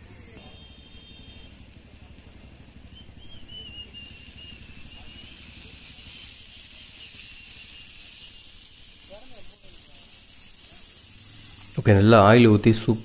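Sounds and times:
low steady rumble: 0:00.0 - 0:13.0
oil sizzling on hot griddle: 0:00.0 - 0:13.0.

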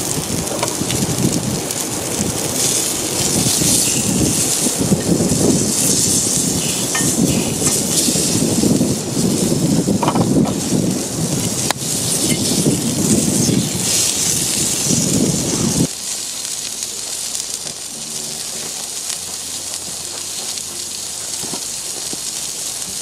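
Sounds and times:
wind rumbling on microphone: 0:00.0 - 0:15.9
food sizzling on griddle: 0:00.0 - 0:23.0
wood fire crackling: 0:00.0 - 0:23.0.

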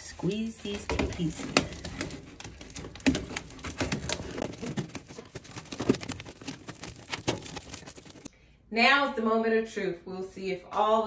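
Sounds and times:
foil duct crinkling: 0:00.0 - 0:08.3.

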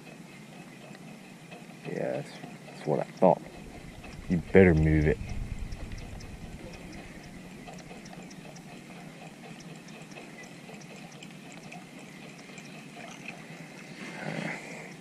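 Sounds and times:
faint drips and ticks: 0:00.0 - 0:15.0.

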